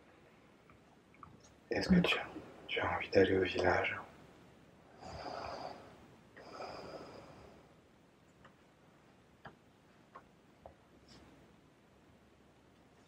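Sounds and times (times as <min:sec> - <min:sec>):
person breathing: 0:04.9 - 0:07.7
faint clicks: 0:08.2 - 0:08.7.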